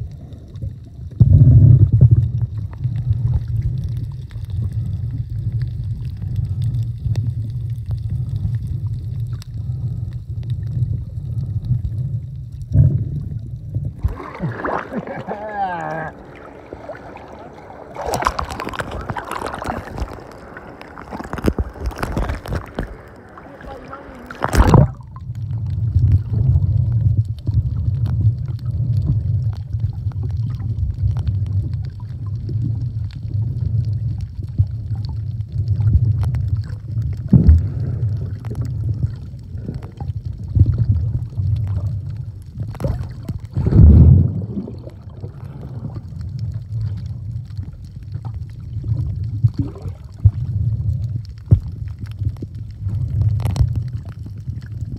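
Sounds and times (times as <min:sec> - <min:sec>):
underwater rumble: 0:00.0 - 0:54.9
underwater thumps and bubble bursts: 0:00.0 - 0:54.9
water splashing: 0:12.6 - 0:54.9.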